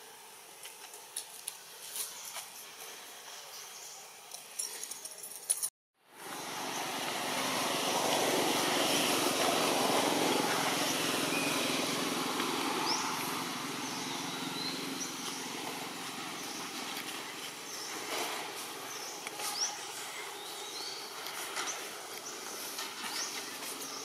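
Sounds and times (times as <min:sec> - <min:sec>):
motor vehicle engine passing: 0:06.1 - 0:24.0.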